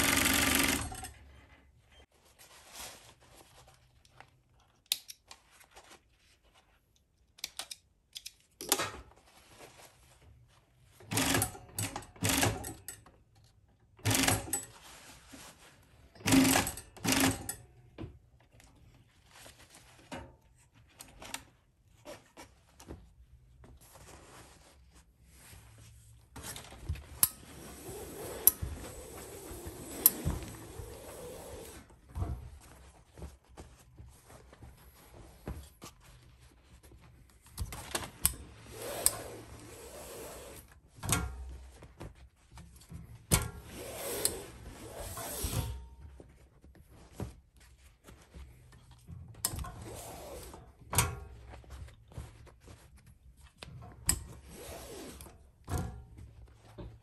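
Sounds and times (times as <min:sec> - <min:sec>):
sewing machine stitching: 0:00.0 - 0:01.2, 0:11.0 - 0:12.9, 0:14.0 - 0:14.7, 0:16.2 - 0:17.6, 0:27.5 - 0:31.9, 0:38.6 - 0:40.7.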